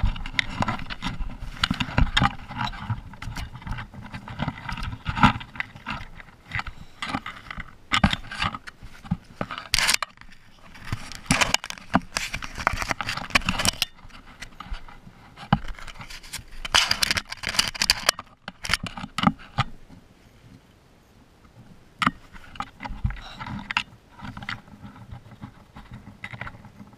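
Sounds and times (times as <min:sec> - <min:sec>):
fur scraping against camera: 0:08.2 - 0:17.7.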